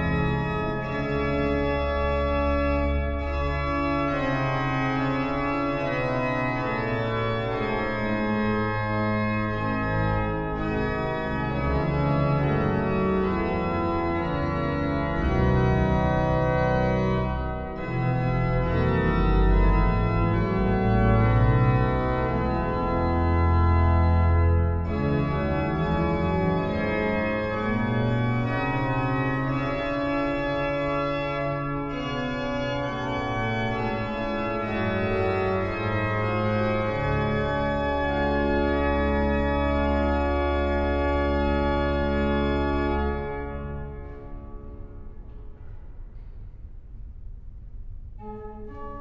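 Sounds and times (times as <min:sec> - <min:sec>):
pipe organ chords: 0:00.0 - 0:46.4, 0:48.2 - 0:49.0.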